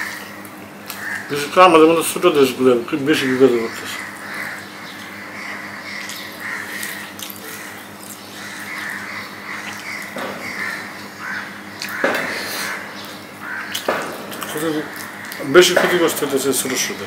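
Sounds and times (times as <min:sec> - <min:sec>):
crows cawing: 0:00.0 - 0:17.0
person eating: 0:04.0 - 0:10.9, 0:11.8 - 0:15.4.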